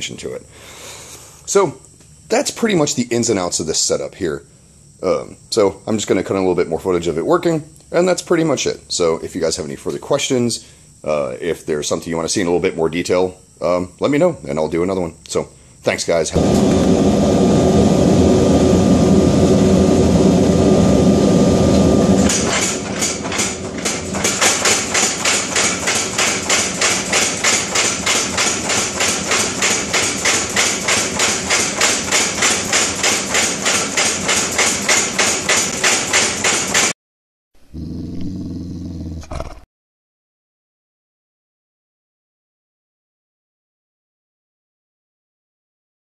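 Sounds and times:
forge burner roaring: 16.3 - 33.0
power hammer striking steel: 22.2 - 36.9.

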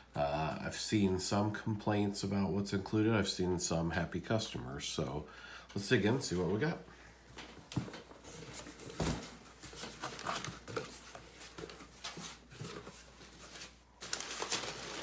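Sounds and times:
packing paper crinkling: 9.6 - 15.0.

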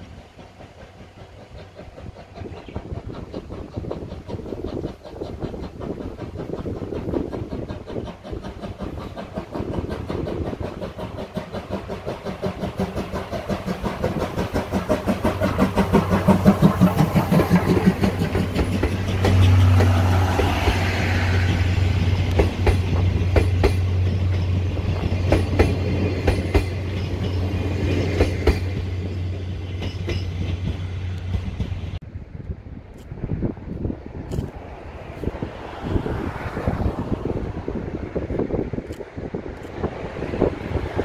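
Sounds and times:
wheels clicking over rail joints: 0.0 - 32.0
train passing: 0.0 - 41.0.

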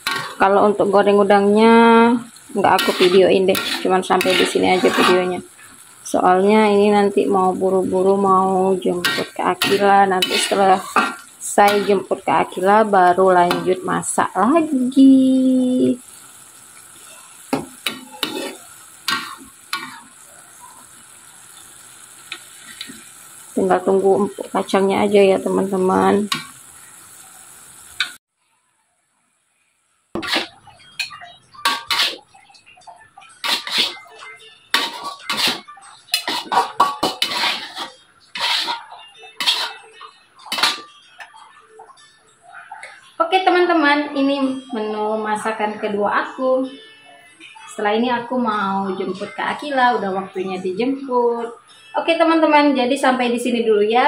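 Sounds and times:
metal spatula scraping wok: 0.0 - 1.6, 2.3 - 6.2, 7.2 - 14.4, 15.8 - 20.9, 21.5 - 28.2, 30.2 - 32.6, 33.3 - 41.4
vegetables sizzling: 0.0 - 28.2, 29.6 - 47.0.

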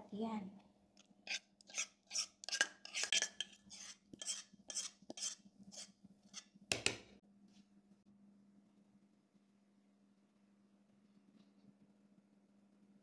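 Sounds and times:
spoon scraping metal pot: 1.3 - 7.0.

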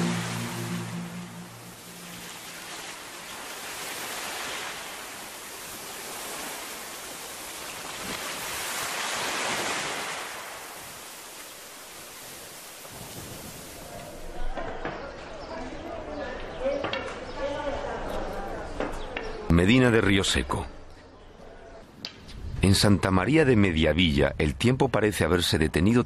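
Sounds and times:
wind blowing through wheat: 1.8 - 14.1.

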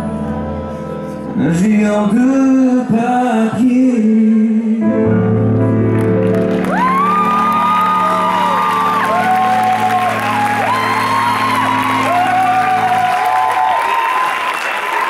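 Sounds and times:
man singing into a microphone: 1.2 - 5.3.

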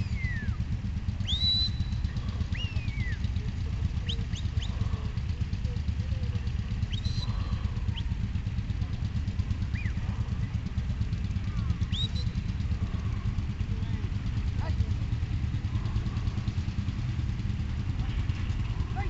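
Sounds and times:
shepherd's whistles: 0.0 - 0.6, 1.2 - 3.3, 4.0 - 4.8, 6.9 - 8.1, 9.7 - 10.0, 11.8 - 12.5.

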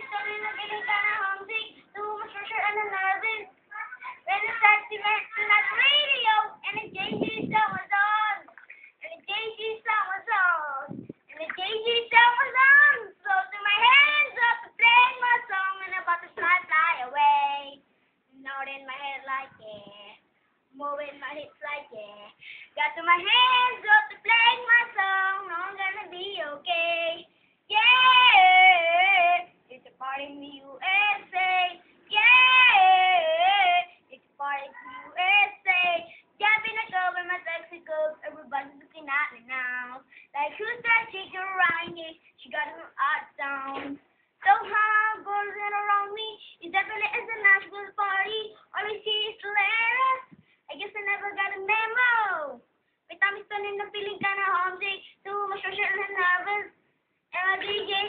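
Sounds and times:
boy singing unaccompanied: 0.0 - 58.0.

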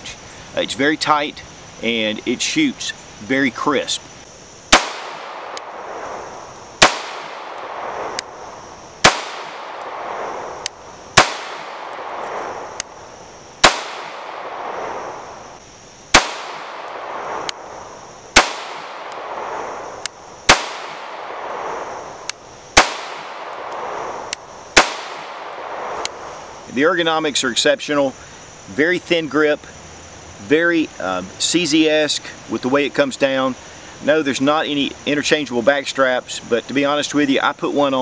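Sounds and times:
pistol shots: 4.7 - 8.4, 9.0 - 13.0, 13.6 - 15.3, 16.1 - 22.0, 22.8 - 26.3.

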